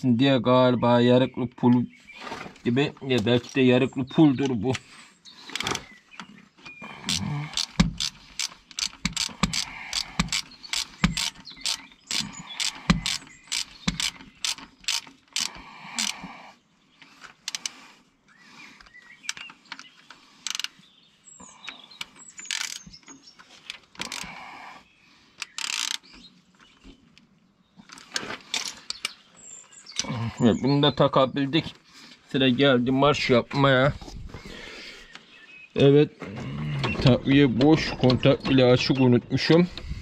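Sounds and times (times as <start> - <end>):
ratchet wrench clicking: 7.1 - 16.2, 20.4 - 20.7, 22.5 - 22.8, 25.4 - 26.0.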